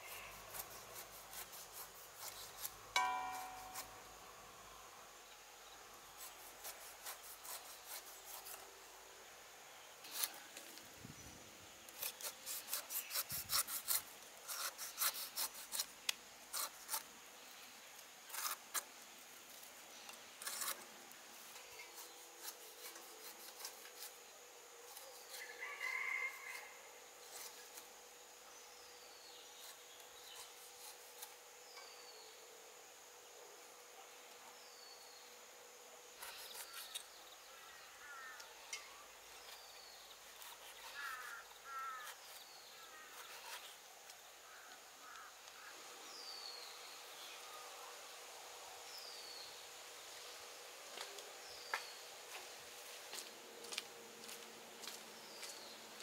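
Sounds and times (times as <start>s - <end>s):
knife scraping pineapple skin: 0.0s - 4.0s, 6.2s - 8.7s, 10.0s - 10.6s, 11.8s - 17.1s, 18.2s - 18.9s, 20.4s - 20.9s, 21.5s - 24.2s, 24.9s - 26.6s, 27.2s - 27.9s, 29.6s - 31.8s, 36.2s - 37.1s, 39.4s - 43.8s
faint insect hum: 0.0s - 56.0s.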